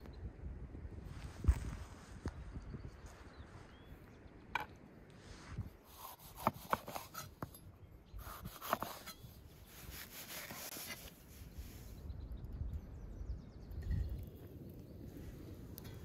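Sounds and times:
knife cutting on wooden board: 5.9s - 7.4s, 8.2s - 9.2s.

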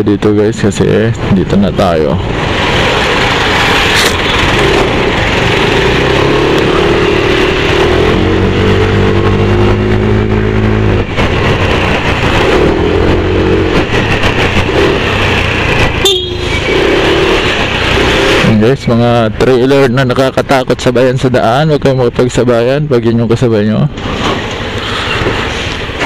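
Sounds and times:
motorcycle engine drone: 0.0s - 22.2s
deep engine hum: 0.8s - 20.1s
wind rush: 2.2s - 18.6s.

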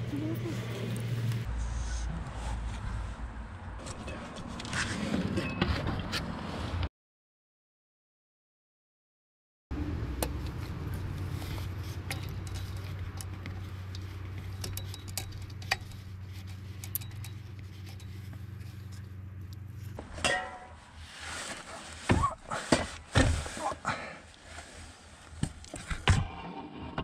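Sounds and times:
knocks and scrapes: 3.8s - 6.9s, 10.5s - 23.8s, 24.5s - 27.0s
metallic clinks and knocks: 12.0s - 19.1s.

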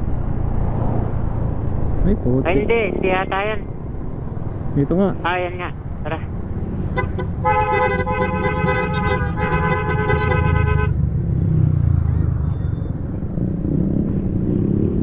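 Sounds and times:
road noise: 0.0s - 15.0s
vehicle horn blasts: 6.9s - 11.0s.

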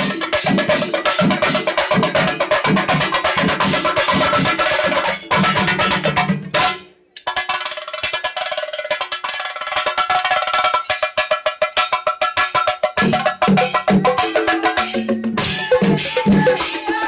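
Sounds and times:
drums crashing: 13.0s - 17.0s.

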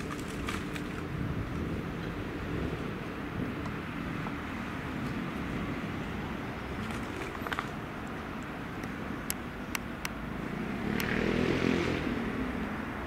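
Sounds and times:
vehicle noise: 0.0s - 13.0s
vehicle passing: 10.2s - 13.0s.

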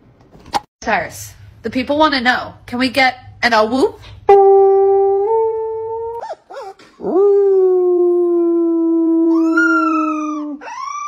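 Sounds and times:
man imitating a howl: 7.0s - 11.0s.

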